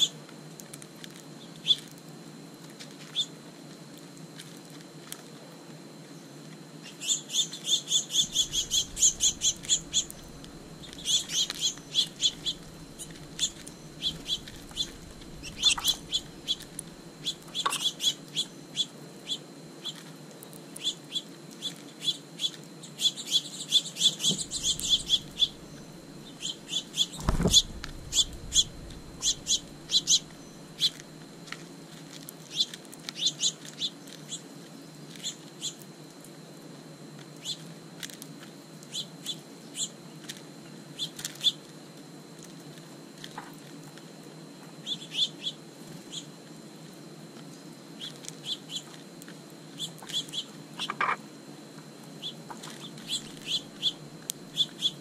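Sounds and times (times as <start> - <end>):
songbirds chirping: 6.1 - 31.1, 52.2 - 55.0
low thump: 27.2 - 30.1.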